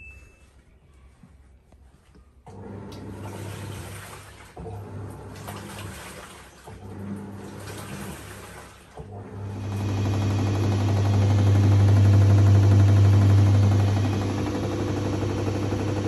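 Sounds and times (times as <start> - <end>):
washing machine motor hum: 2.4 - 16.0
water swishing in drum: 2.5 - 16.0.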